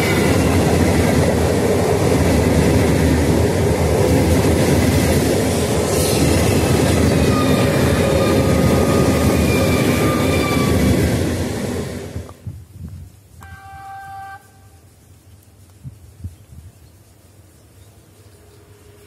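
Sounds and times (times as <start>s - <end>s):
train wheels rumbling on rails: 0.0s - 14.8s.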